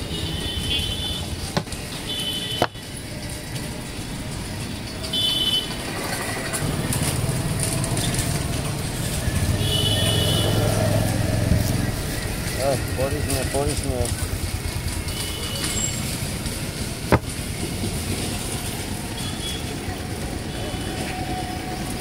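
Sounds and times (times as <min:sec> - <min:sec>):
street traffic: 0:00.0 - 0:22.0
sharp knocks: 0:01.5 - 0:01.9, 0:02.6 - 0:02.8, 0:17.1 - 0:17.4.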